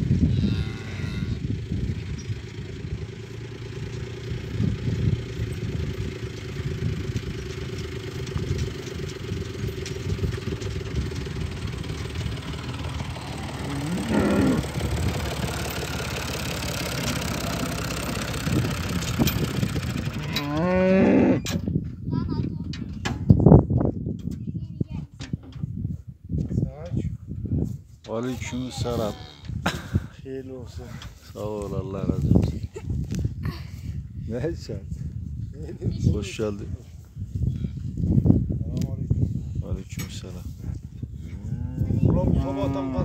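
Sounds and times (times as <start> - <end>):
low rumble: 0.0 - 24.7
cattle mooing: 0.3 - 1.4, 12.8 - 14.9, 20.1 - 21.5, 41.4 - 43.0.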